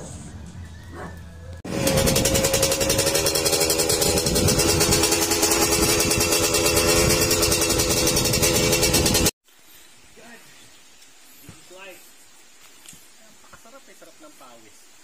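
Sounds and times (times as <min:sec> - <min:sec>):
dirt bike engine running: 0:01.6 - 0:09.4.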